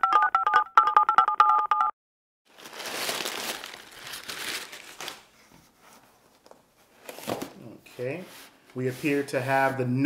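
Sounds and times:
packing paper rustling: 2.5 - 5.5.

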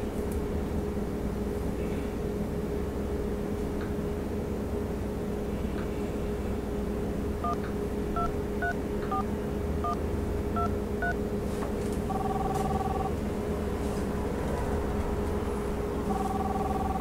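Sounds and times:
long steady phone tone: 7.4 - 7.6, 8.2 - 10.0, 10.6 - 11.2, 12.1 - 13.2, 16.0 - 17.0
phone keypad dual-tone beeps: 8.2 - 10.0, 10.6 - 11.2, 12.1 - 13.1, 16.1 - 17.0.

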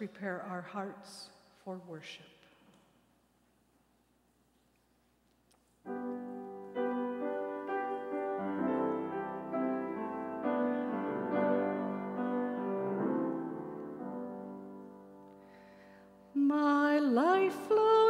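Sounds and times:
grand piano slow chords: 5.9 - 16.9.

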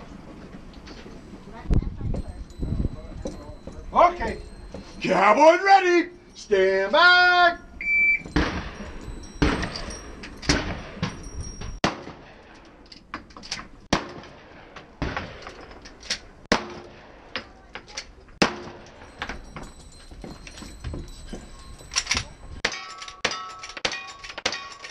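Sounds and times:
gunshots: 8.3 - 8.8, 11.8 - 12.6, 13.9 - 15.6, 16.5 - 17.4, 18.4 - 18.9.

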